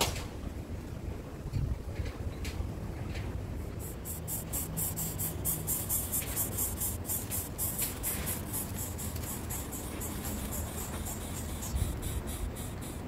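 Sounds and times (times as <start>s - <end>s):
rapid high-pitched chirping: 3.8s - 13.0s.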